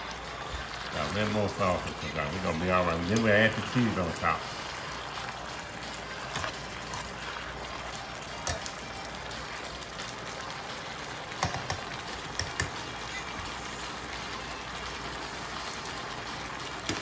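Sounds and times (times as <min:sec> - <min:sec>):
chicken sizzling in sauce: 0:00.0 - 0:17.0
metal tongs clicking on pan: 0:08.4 - 0:08.8, 0:11.3 - 0:12.8.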